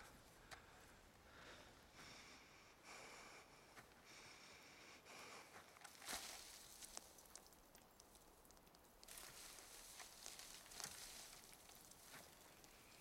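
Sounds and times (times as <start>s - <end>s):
soft high hiss: 3.5s - 13.0s
small ticks and rustles: 5.2s - 13.0s.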